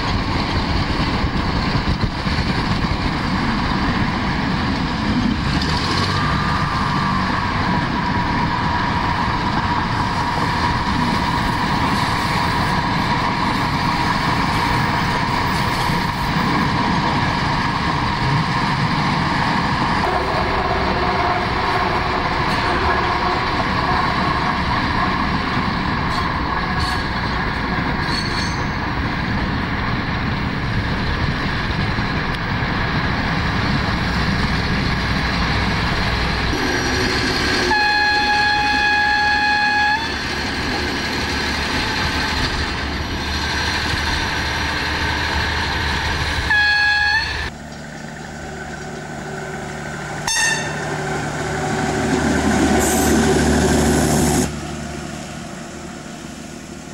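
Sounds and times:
diesel railbus droning: 0.0s - 56.9s
high train horn note: 20.0s - 24.6s, 36.6s - 40.3s, 46.5s - 47.5s, 50.2s - 51.9s.

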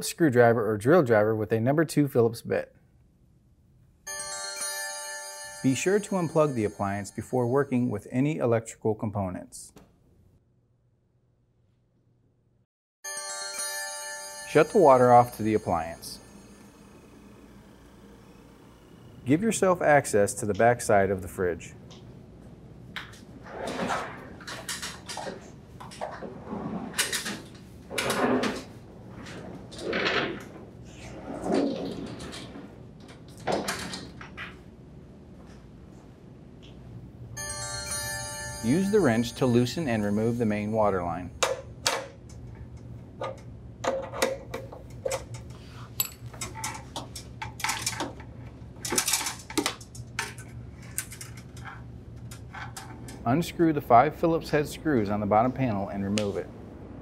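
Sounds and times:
refrigerator scraping on floor: 26.2s - 27.0s.

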